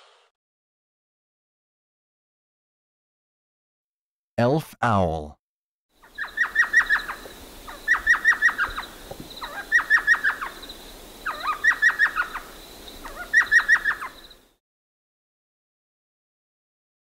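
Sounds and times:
owl high yelping calls: 6.0 - 14.4.

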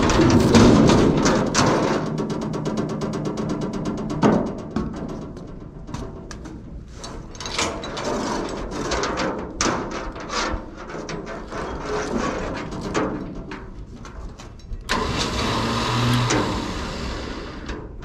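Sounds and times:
chainsaw engine running: 14.9 - 17.6
chainsaw pull-start: 14.9 - 17.8.

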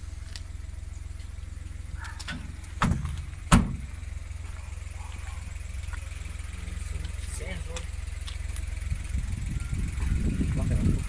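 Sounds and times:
steady low hum: 0.0 - 11.0
boot lid thump: 2.3 - 3.9
car boot lid slamming: 2.3 - 3.9.

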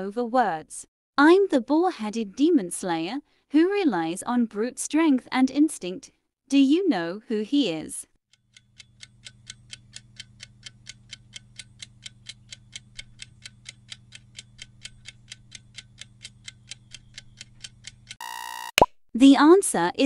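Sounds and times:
rapid clock-like ticking: 8.3 - 18.2.

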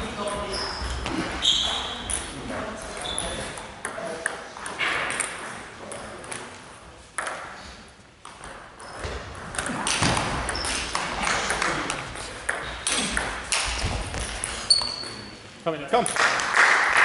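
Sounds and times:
table tennis ball hits: 8.2 - 14.6.

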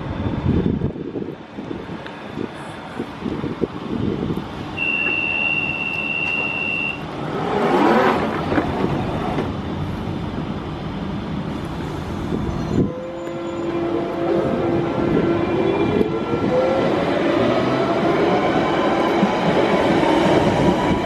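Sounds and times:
train running noise: 0.0 - 21.0
high door warning tone: 4.8 - 7.1
sliding doors closing: 5.0 - 9.6.

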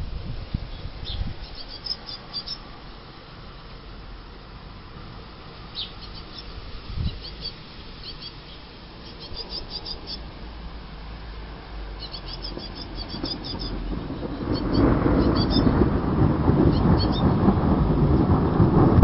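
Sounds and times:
birds chirping: 0.7 - 3.3, 5.4 - 10.5, 11.8 - 15.9, 16.6 - 17.4.

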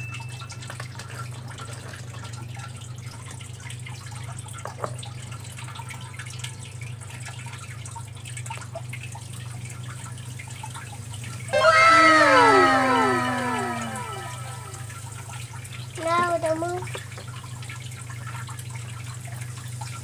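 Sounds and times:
faint water drips: 0.0 - 11.9, 12.6 - 20.0
falling whistle tones: 11.5 - 15.0.

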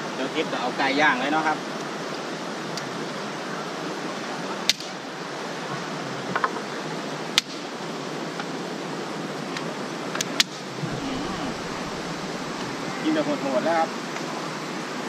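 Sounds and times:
waterfall rushing: 10.7 - 13.4.

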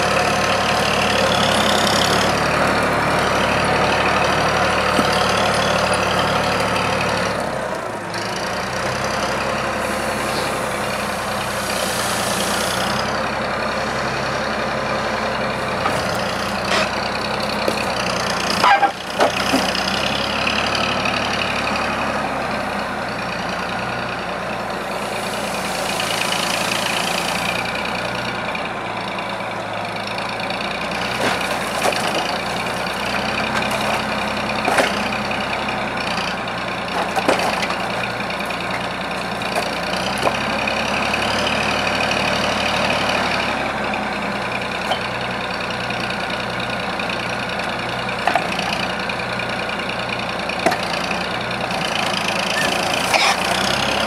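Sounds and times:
diesel engine running: 0.0 - 54.0
grapple knocking against logs: 4.8 - 5.6, 15.7 - 20.1, 31.0 - 35.2, 36.9 - 40.6.

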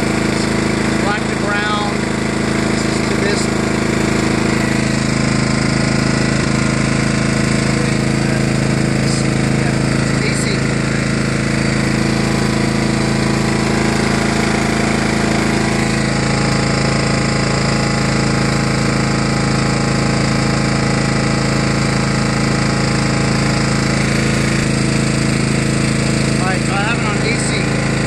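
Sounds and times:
lawn tractor engine running: 0.0 - 28.0.

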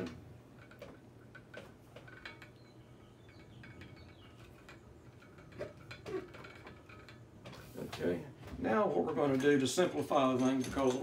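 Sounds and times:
low steady hum: 0.0 - 11.0
light metallic clinks: 0.6 - 7.4.

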